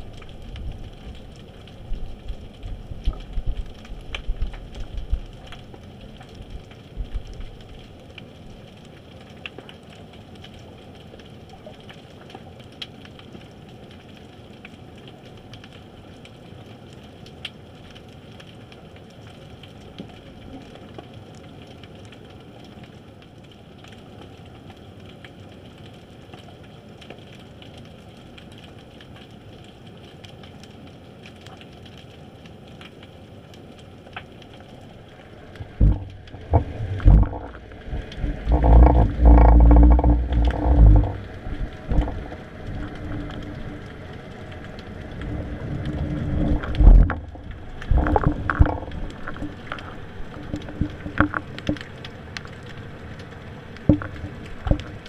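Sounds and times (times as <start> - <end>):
faint crackling clicks: 0.0 - 55.0
heavy low thumps: 35.7 - 37.6, 38.2 - 42.3.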